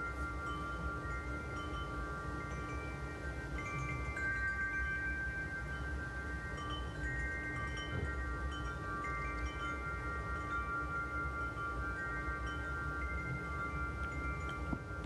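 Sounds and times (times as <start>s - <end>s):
wind chimes ringing: 0.0s - 15.0s.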